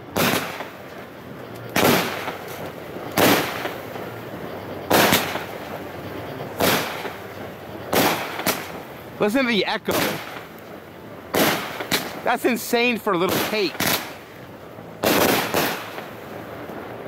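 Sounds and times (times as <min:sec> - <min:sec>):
firework bangs with echo: 0:00.0 - 0:01.0, 0:01.6 - 0:04.2, 0:04.9 - 0:05.7, 0:06.6 - 0:10.6, 0:11.3 - 0:14.3, 0:15.0 - 0:17.0.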